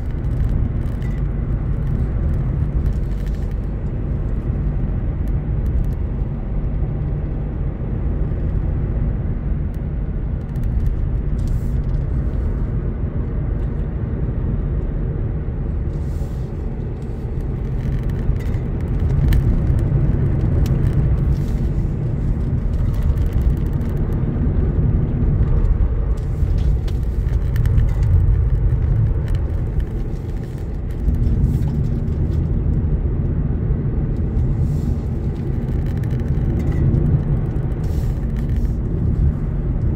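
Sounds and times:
car engine and tyre rumble: 0:00.0 - 0:39.9.

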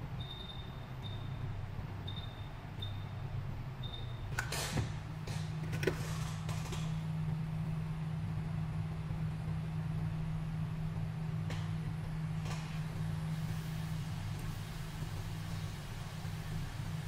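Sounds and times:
low machine hum: 0:00.0 - 0:17.0
short high beep: 0:00.2 - 0:01.4.

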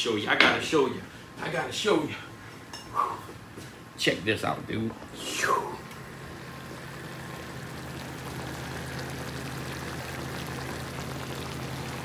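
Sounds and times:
low steady hum: 0:00.0 - 0:12.0
gravy bubbling in a skillet: 0:05.9 - 0:12.0.

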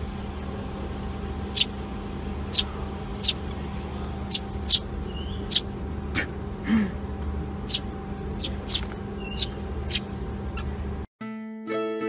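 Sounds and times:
low background hum: 0:00.0 - 0:11.1
sparrow chirping: 0:01.5 - 0:01.8, 0:02.4 - 0:05.7, 0:07.6 - 0:10.8.

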